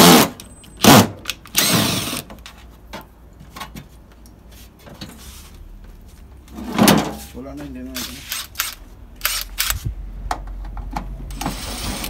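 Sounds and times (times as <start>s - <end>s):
power drill running: 1.6s - 2.2s.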